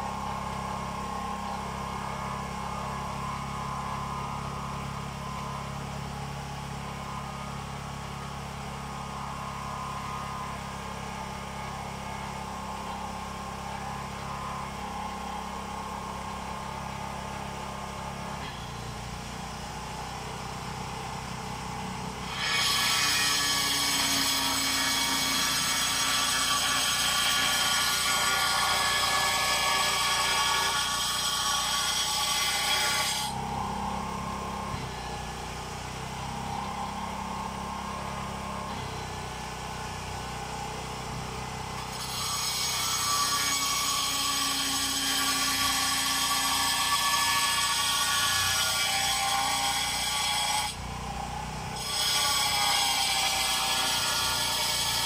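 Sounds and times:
small engine revving: 22.2 - 55.0.

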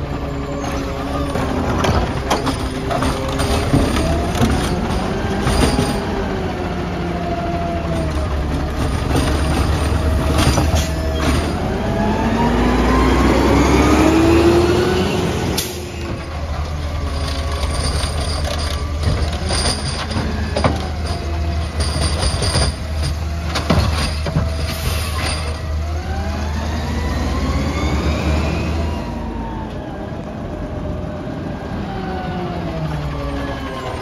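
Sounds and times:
truck diesel engine revving: 0.0 - 19.5, 24.6 - 29.5.

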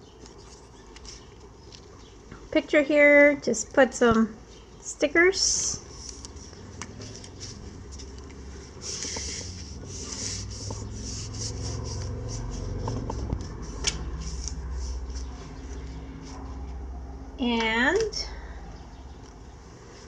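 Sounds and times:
hands rubbing paper: 0.2 - 2.0, 5.6 - 16.6.

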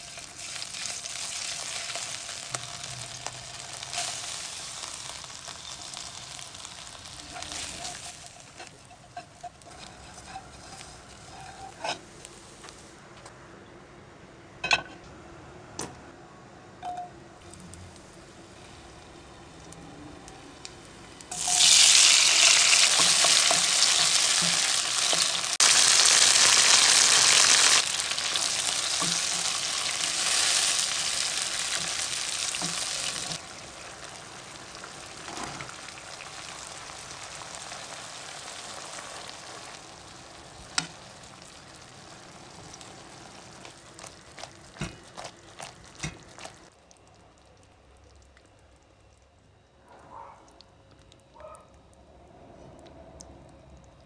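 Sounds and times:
food sizzling in oil: 0.0 - 12.0, 21.3 - 45.0.

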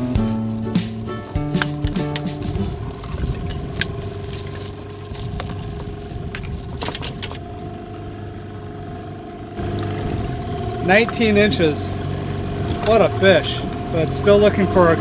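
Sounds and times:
outboard motor humming: 0.0 - 15.0
landing net rattling and clicking: 0.3 - 7.4.

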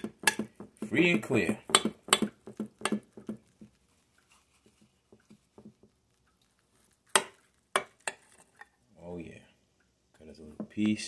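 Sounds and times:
knife blade knocking on glass: 0.0 - 3.3.

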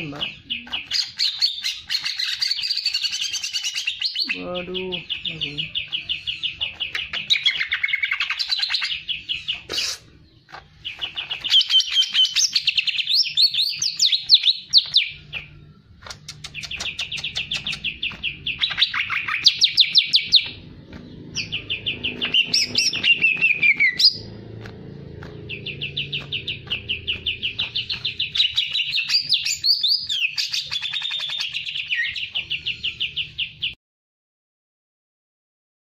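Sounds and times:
bird singing rapid chattering song: 0.0 - 33.8.

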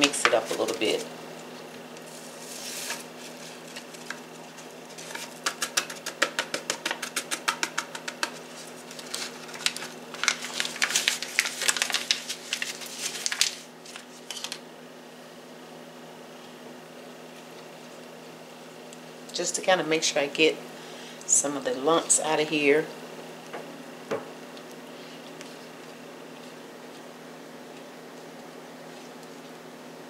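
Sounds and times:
soft rustle: 2.0 - 4.0.

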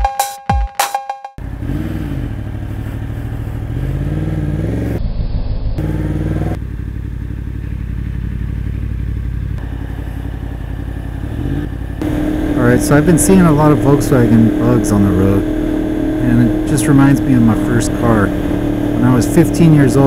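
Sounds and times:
electronic music with drum-machine hits: 0.0 - 1.4
motorcycle engine revving: 1.4 - 20.0.

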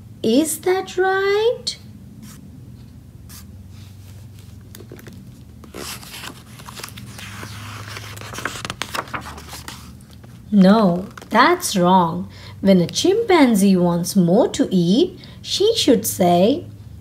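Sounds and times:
steady low hum: 0.0 - 15.5
paper pages rustling: 3.3 - 11.6.

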